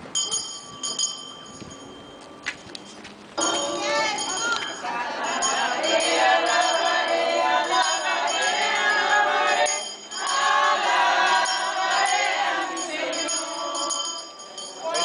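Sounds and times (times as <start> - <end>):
crowd singing a hymn: 3.4 - 15.0.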